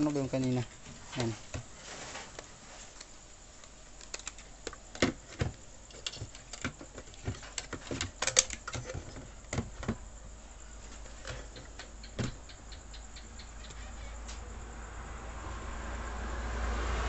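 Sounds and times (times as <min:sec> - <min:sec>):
small clicks and taps: 0:11.2 - 0:14.4.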